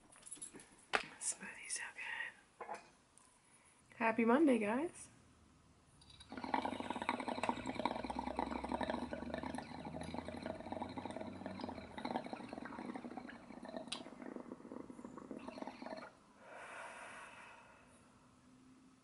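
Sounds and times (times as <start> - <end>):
water bubbling in a glass pipe: 6.0 - 16.2.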